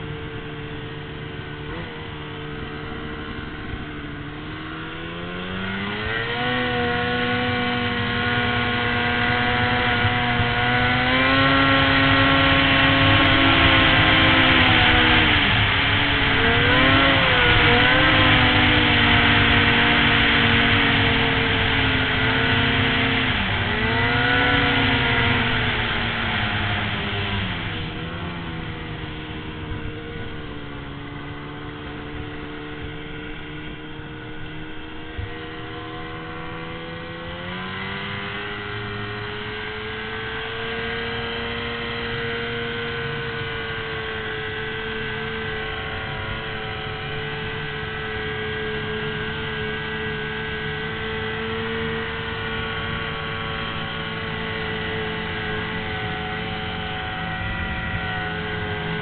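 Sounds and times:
snowmobile engine running: 0.0s - 59.0s.

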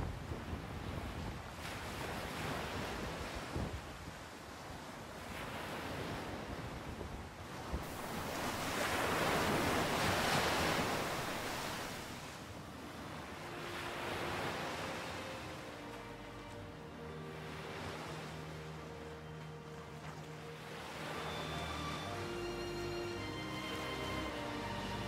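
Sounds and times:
sea waves washing on shore: 0.0s - 25.0s.

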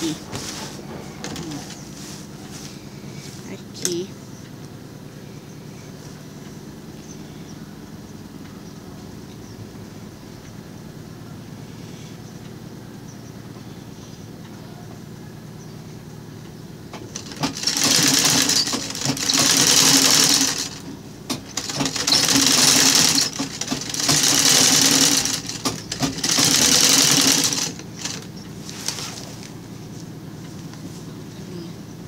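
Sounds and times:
sewing machine stitching: 17.0s - 29.4s.

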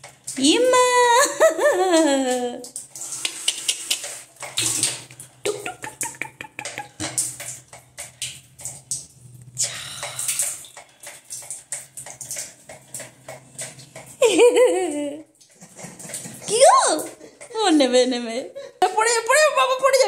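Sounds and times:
water pouring and splashing: 0.0s - 20.0s.

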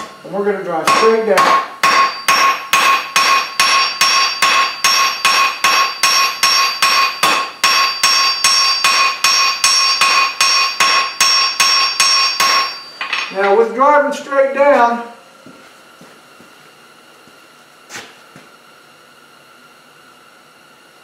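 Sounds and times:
anvil ringing: 0.8s - 13.6s
hammer striking hot steel: 0.8s - 13.6s.

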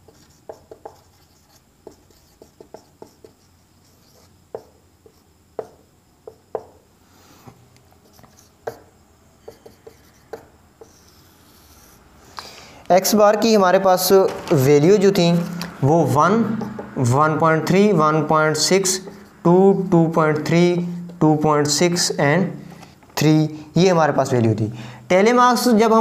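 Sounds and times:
marker writing on whiteboard: 0.0s - 6.8s, 7.9s - 12.0s, 14.0s - 21.2s.

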